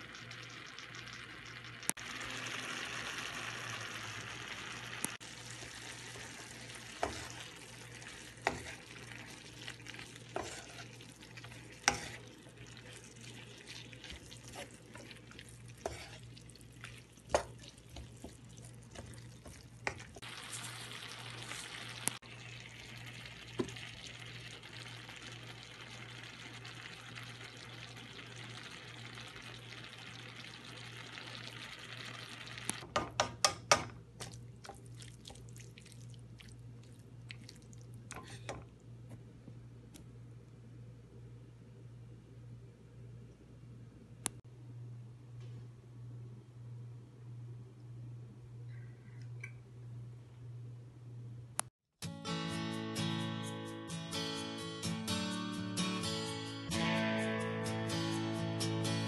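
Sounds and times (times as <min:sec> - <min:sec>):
vegetables sizzling in a wok: 0:00.0 - 0:32.9
wooden spatula knocking on pan: 0:32.9 - 0:34.0.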